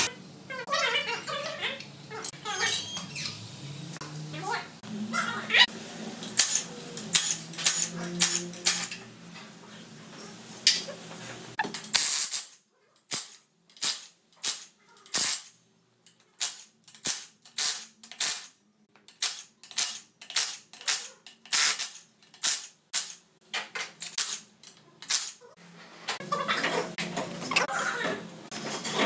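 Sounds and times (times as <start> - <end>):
power tool bursts: 6.4 - 9.0.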